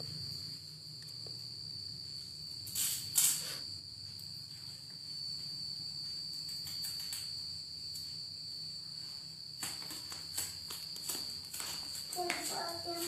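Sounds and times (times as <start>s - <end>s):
crickets trilling: 0.0s - 13.0s
soft rustles and taps: 9.6s - 13.0s.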